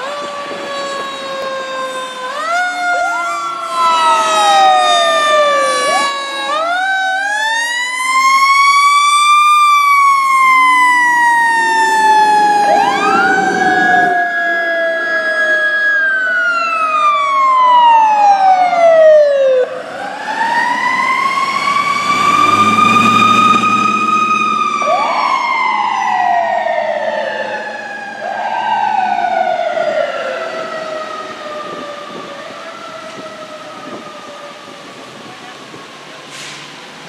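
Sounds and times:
second siren rising quickly: 0.0s - 35.0s
wailing siren: 0.0s - 37.0s
truck engine rumbling past: 19.8s - 26.5s.

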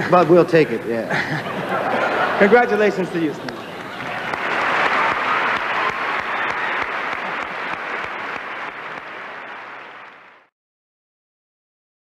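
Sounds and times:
audience applauding: 2.0s - 10.5s.

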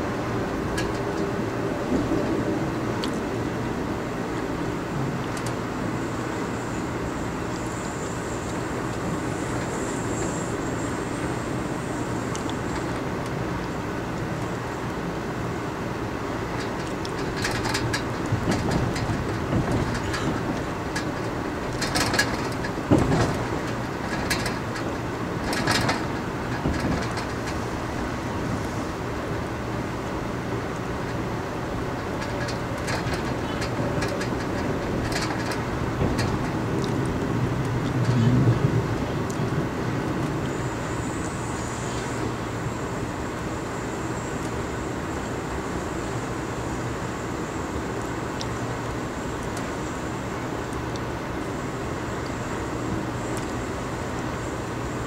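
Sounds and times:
train rumbling on rails: 0.0s - 55.0s
sharp clicks and knocks: 16.6s - 27.6s, 32.0s - 37.2s.

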